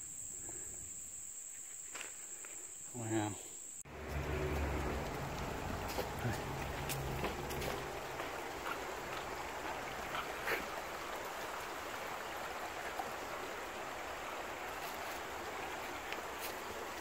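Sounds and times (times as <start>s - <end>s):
creek flowing over stones: 3.8s - 17.0s.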